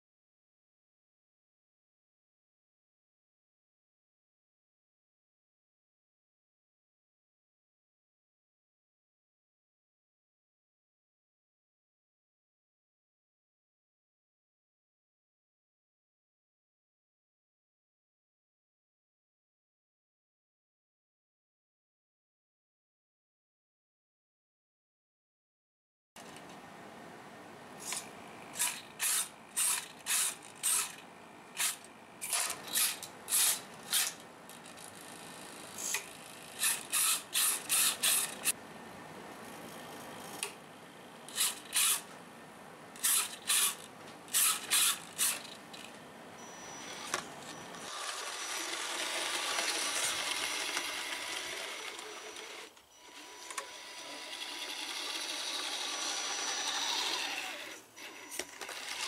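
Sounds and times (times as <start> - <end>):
servos whirring: 27.8 - 38.5, 41.3 - 42.1, 43.0 - 59.0
electric motor whirr and whine: 43.0 - 59.0.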